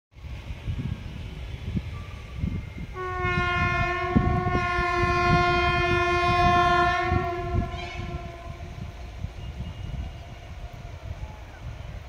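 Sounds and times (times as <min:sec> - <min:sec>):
train horn blast: 0:02.9 - 0:10.6.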